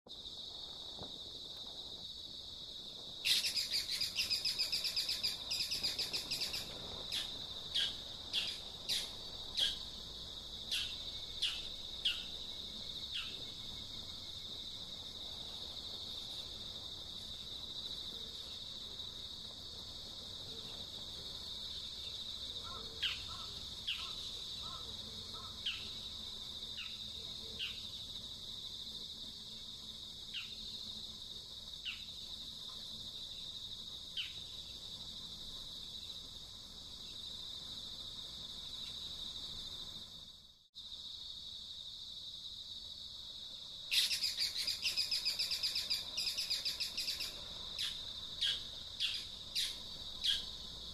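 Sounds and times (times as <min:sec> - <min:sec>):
steady high insect drone: 0:00.1 - 0:50.9
small birds chirping: 0:03.2 - 0:09.9, 0:10.7 - 0:14.4, 0:21.6 - 0:28.1, 0:33.1 - 0:34.9, 0:43.9 - 0:50.6.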